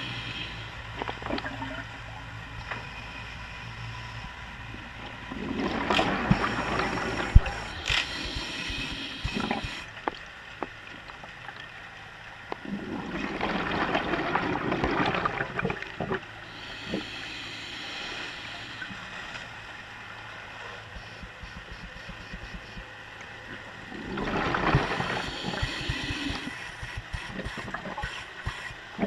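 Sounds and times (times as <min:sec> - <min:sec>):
regulator inhalation hiss: 0:00.0 - 0:00.8, 0:06.4 - 0:09.9, 0:16.4 - 0:19.2, 0:24.9 - 0:28.8
exhaled bubbles rushing: 0:05.3 - 0:07.6, 0:12.6 - 0:16.3, 0:23.8 - 0:26.5.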